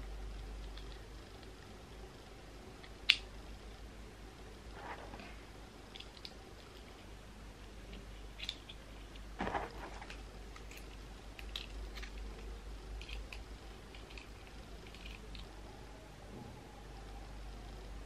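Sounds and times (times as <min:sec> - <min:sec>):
small plastic clicks and scratches: 0:00.4 - 0:01.7, 0:07.9 - 0:15.5.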